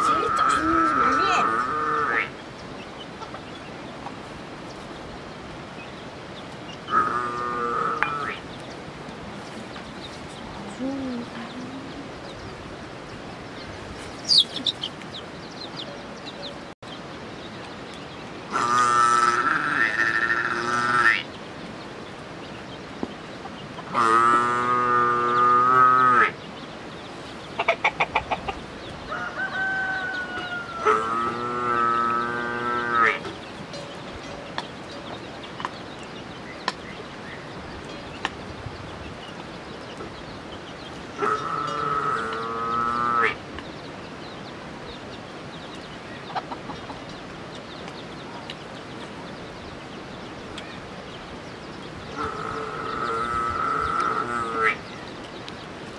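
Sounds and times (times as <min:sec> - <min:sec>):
farm animal long call: 0:00.0 - 0:02.4, 0:06.9 - 0:08.4, 0:18.5 - 0:21.3, 0:23.9 - 0:26.4, 0:29.1 - 0:33.3, 0:41.2 - 0:43.4, 0:52.1 - 0:54.8
small birds chirping: 0:00.0 - 0:55.9
high bird chirps: 0:13.7 - 0:16.6.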